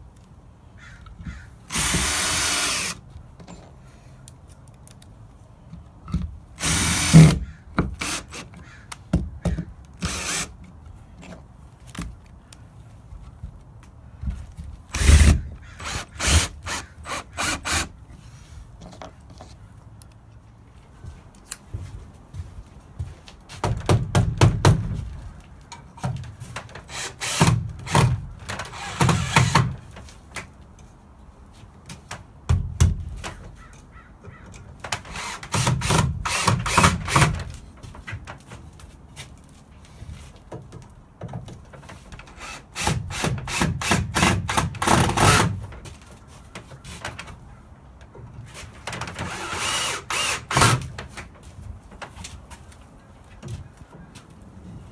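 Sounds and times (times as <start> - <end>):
cordless drill driving screws: 1.7 - 3.0, 6.6 - 7.4, 8.0 - 8.5, 10.0 - 10.5, 14.9 - 17.9, 26.9 - 29.8, 35.1 - 37.3, 49.2 - 50.8.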